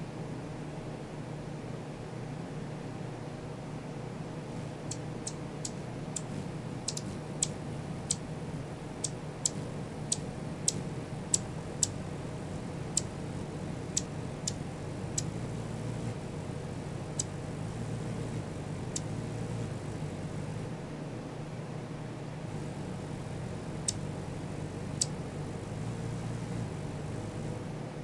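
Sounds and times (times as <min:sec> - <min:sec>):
low background hum: 0:00.0 - 0:28.0
hummingbird chip notes: 0:04.8 - 0:20.6, 0:22.5 - 0:27.5.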